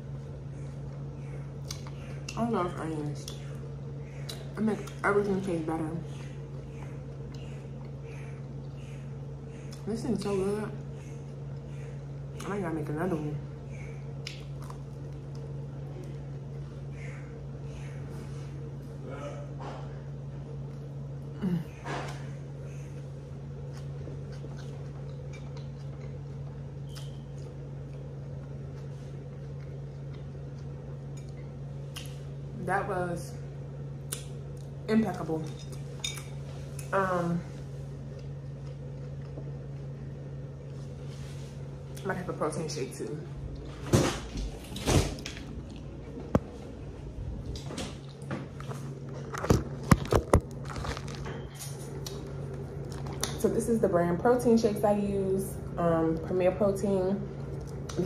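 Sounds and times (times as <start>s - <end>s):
steady low hum: 0.0s - 58.0s
person chewing a sandwich: 13.7s - 21.3s, 22.1s - 32.4s, 37.7s - 42.0s, 44.6s - 53.4s.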